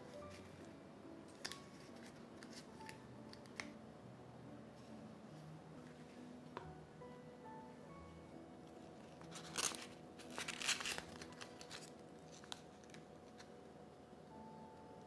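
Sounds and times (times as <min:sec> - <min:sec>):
soft background music: 0:00.0 - 0:15.0
wrapping material crinkling: 0:08.9 - 0:13.5.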